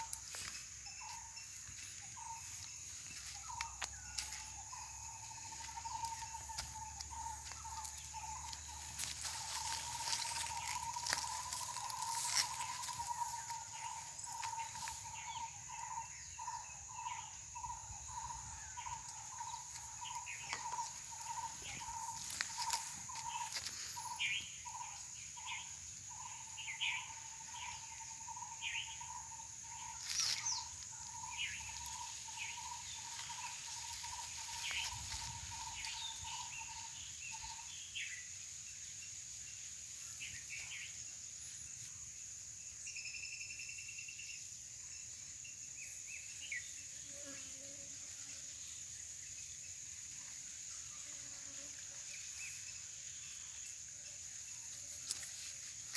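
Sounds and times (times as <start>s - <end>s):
high-pitched insect drone: 0.0s - 55.9s.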